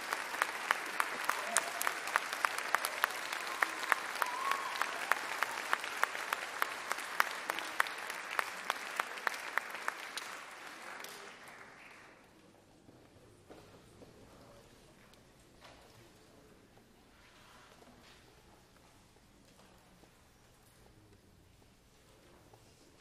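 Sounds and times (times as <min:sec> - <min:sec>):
close sharp clapping: 0:00.0 - 0:12.2
audience applauding: 0:00.0 - 0:12.3.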